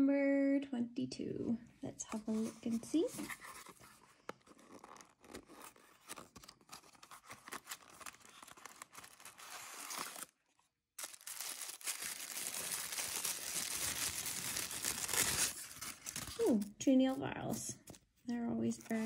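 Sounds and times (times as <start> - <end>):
tissue paper crinkling: 2.3 - 10.4, 11.0 - 16.7.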